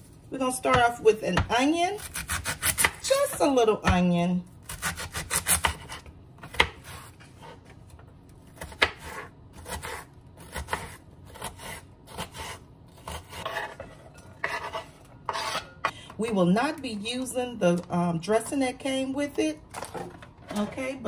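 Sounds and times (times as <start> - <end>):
knife slicing onion: 0.6 - 7.7, 8.4 - 15.9.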